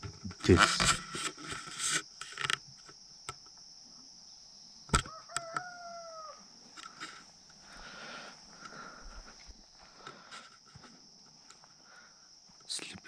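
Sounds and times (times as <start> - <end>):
distant rooster crowing: 4.9 - 6.9.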